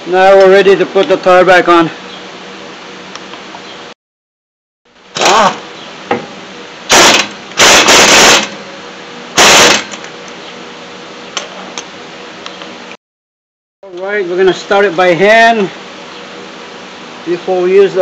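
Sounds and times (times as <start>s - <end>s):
air impact wrench bursts: 5.2s - 5.6s, 6.9s - 8.6s, 9.4s - 10.0s.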